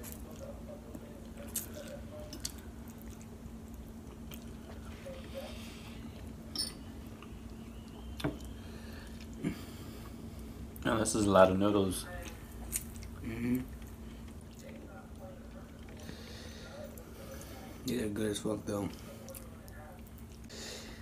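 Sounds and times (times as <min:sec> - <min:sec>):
people chewing and slurping: 0:00.0 - 0:10.9, 0:12.1 - 0:17.9
faint steady hum: 0:00.0 - 0:21.0.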